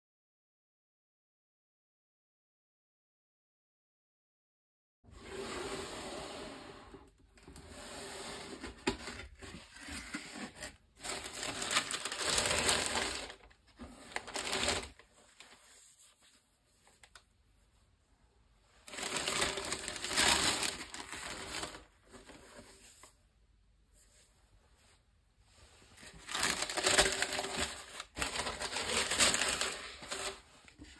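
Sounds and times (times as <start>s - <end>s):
tissue paper crinkling: 10.0s - 17.1s, 18.8s - 23.1s, 25.7s - 30.9s.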